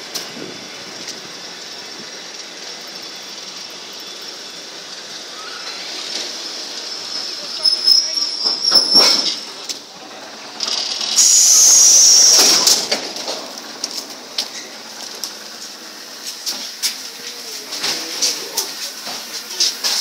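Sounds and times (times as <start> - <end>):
compressed air hissing: 11.0 - 12.9.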